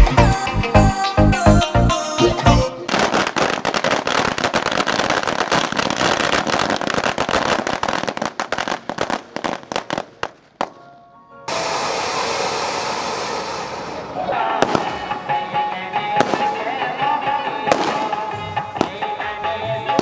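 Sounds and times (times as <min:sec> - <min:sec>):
electronic dance music: 0:00.0 - 0:03.0, 0:11.5 - 0:19.9
firecrackers crackling: 0:02.8 - 0:10.8, 0:11.5 - 0:20.0.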